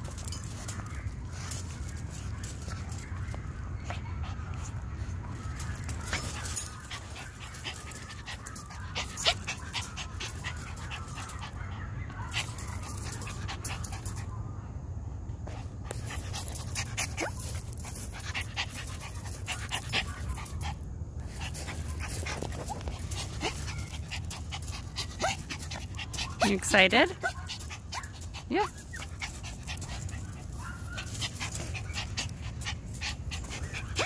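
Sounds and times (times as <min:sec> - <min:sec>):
puppy panting: 0:03.8 - 0:11.7, 0:15.9 - 0:34.0.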